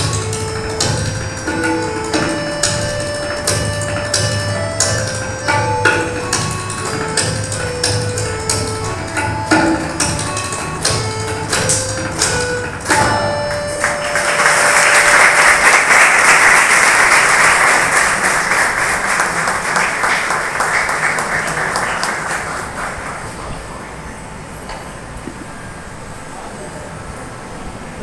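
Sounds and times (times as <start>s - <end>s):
tabla strokes: 0.0s - 15.6s
harmonium notes: 0.0s - 23.6s
audience applause: 13.5s - 23.5s.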